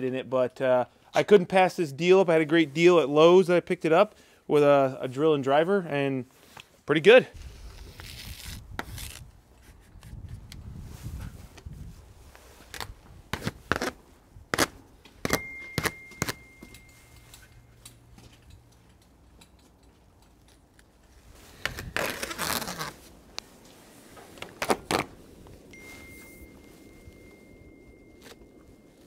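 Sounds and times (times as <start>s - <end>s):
rustling scrape: 7.4s - 14.0s, 21.1s - 29.0s.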